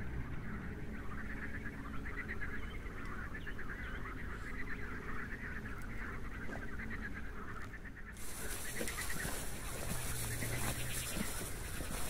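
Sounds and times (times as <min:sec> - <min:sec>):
chorus of rapid animal calls: 0:00.0 - 0:12.0
bird chirps: 0:00.1 - 0:12.0.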